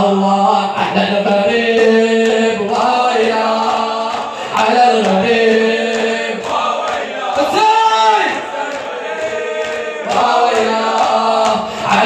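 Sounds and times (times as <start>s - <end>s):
men chanting in unison: 0.0s - 12.0s.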